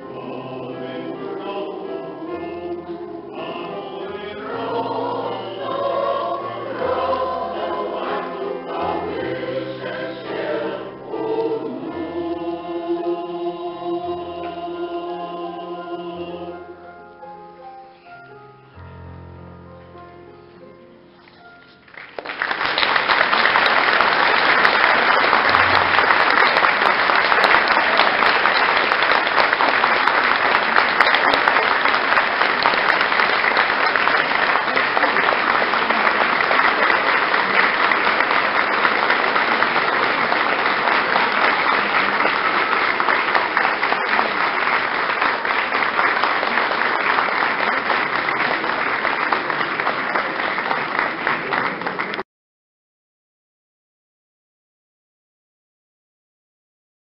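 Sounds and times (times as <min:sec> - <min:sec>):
audience applauding: 0:21.8 - 0:52.2.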